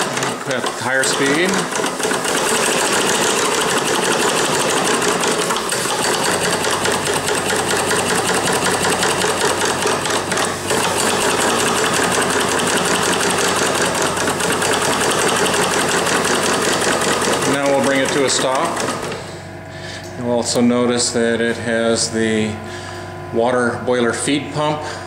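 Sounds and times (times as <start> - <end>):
model steam engine running fast: 0.0 - 19.2
valve gear clatter: 0.0 - 19.3.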